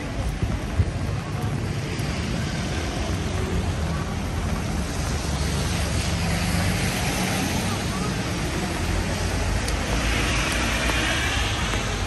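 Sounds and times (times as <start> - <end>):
rain and wet tyres hissing: 0.0 - 12.0
road traffic rumble: 0.0 - 12.0.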